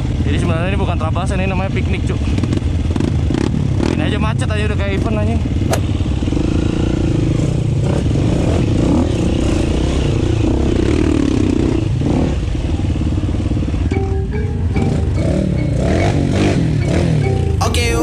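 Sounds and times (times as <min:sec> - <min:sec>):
dirt bike engine at low revs: 0:00.0 - 0:13.9
other dirt bike engines: 0:00.0 - 0:17.6.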